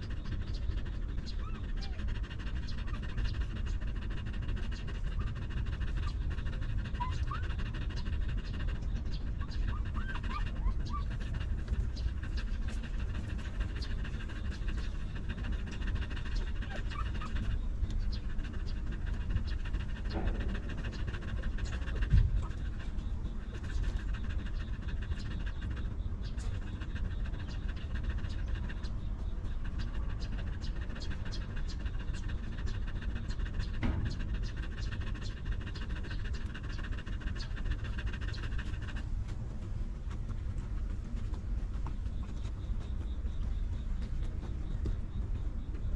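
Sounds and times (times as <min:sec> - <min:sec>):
dog panting: 0:00.0 - 0:45.9.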